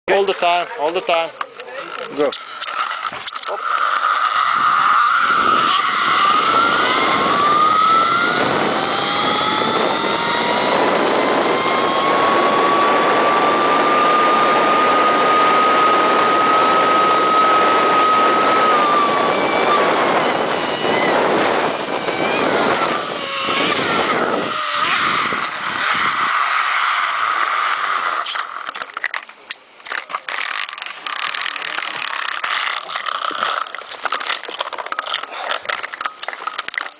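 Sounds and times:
zipline trolley whining on cable: 0.1 - 36.9
wind rushing on microphone: 3.1 - 28.7.

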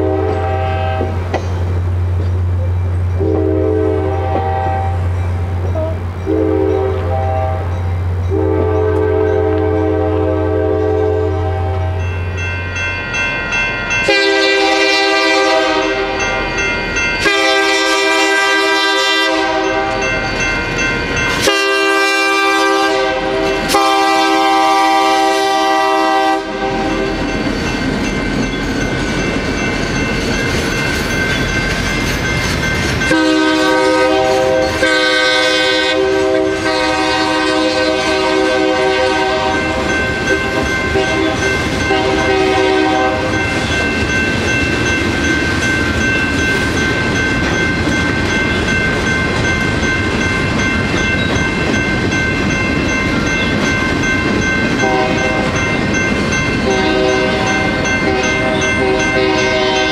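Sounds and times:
locomotive air horn blasts: 0.0 - 1.2, 3.2 - 5.2, 5.8 - 12.0, 14.1 - 16.3, 17.2 - 20.1, 21.4 - 27.2, 33.1 - 39.8, 40.9 - 43.4, 54.8 - 55.5, 56.7 - 59.9
train rumbling and clattering: 0.0 - 59.9.

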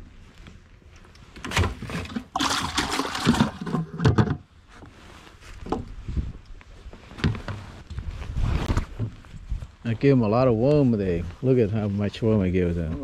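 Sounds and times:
bucket knocks: 1.6 - 4.4.

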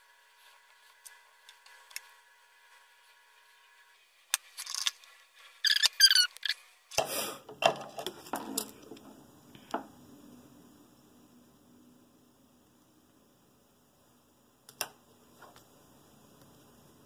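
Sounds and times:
short squeaks: 5.6 - 6.6.

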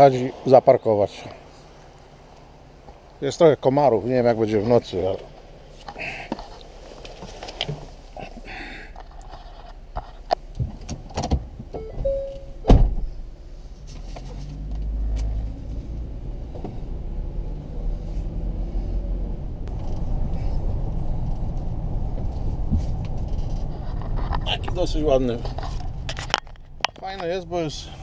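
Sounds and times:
van engine and tyre rumble: 0.0 - 28.0
brief steady tone: 11.8 - 12.6
loud thump: 12.7 - 13.2.

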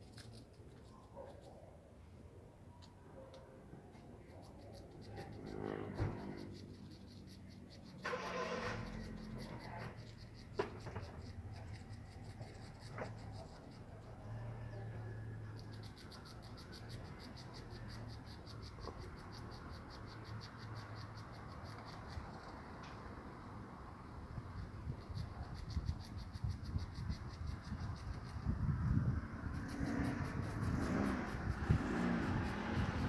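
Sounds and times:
insects chirring: 15.4 - 22.6.

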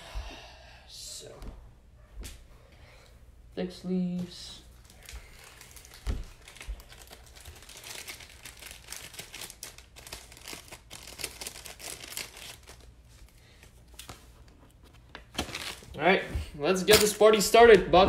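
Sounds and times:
plastic packaging crinkling: 4.7 - 14.1, 15.2 - 16.0.

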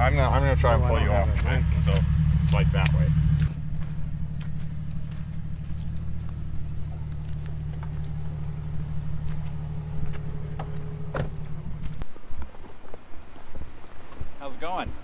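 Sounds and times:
engine idling rumble: 0.0 - 12.3.

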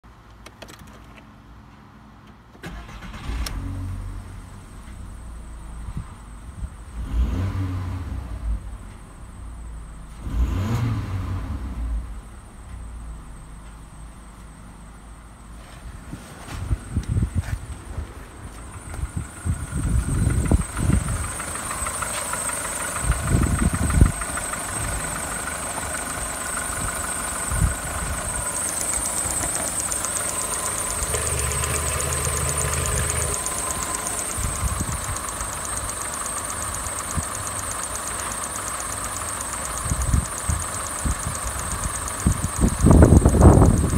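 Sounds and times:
car engine idling: 2.7 - 43.9
high whine: 11.3 - 43.9.

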